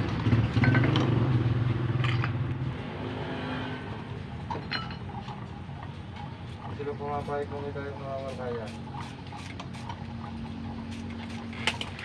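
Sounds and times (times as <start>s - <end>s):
vehicle engine running: 0.0s - 7.9s.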